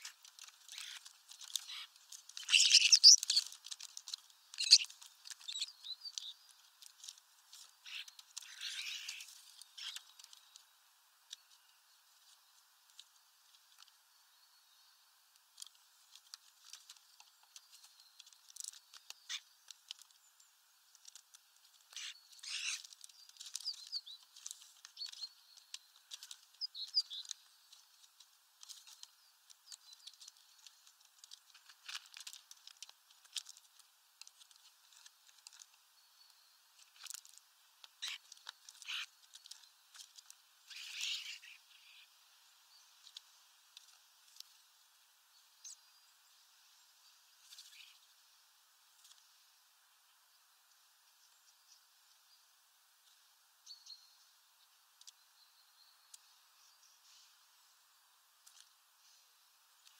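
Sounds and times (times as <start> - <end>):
short bird calls: 0.0 - 3.5, 4.5 - 6.4, 7.8 - 10.1, 21.9 - 22.9.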